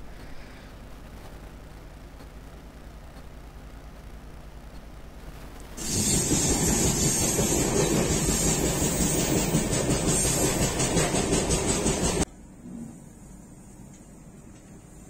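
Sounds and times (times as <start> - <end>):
train wheels rumbling on rails: 5.8 - 12.3.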